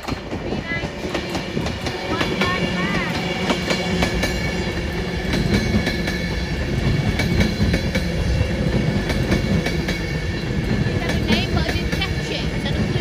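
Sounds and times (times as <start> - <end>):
train wheels rumbling on rail: 0.0 - 13.0
wheels clicking on track: 0.0 - 13.0.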